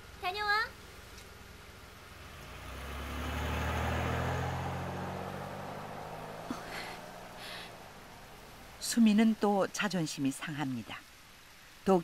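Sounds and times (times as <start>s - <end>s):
car engine driving off: 1.3s - 8.9s.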